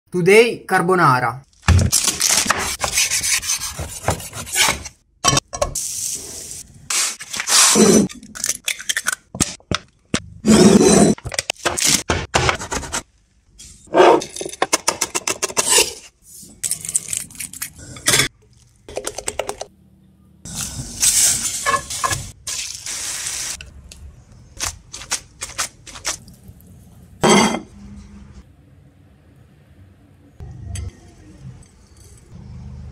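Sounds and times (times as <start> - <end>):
utensils scraping board and pan: 2.5 - 5.0
cookware clinking: 27.2 - 27.7.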